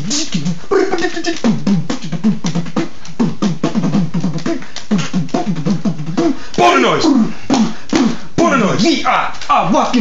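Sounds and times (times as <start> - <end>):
beatboxing drum clicks: 0.0 - 10.0.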